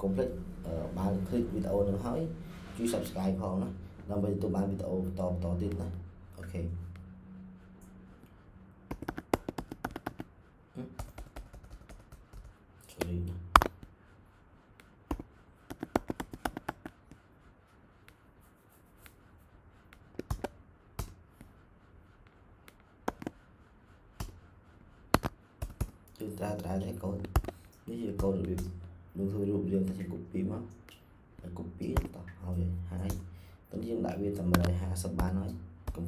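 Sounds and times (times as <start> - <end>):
computer keyboard typing: 8.8 - 13.7, 15.1 - 17.0, 20.0 - 21.2, 22.7 - 23.4, 24.2 - 24.4, 25.1 - 28.8.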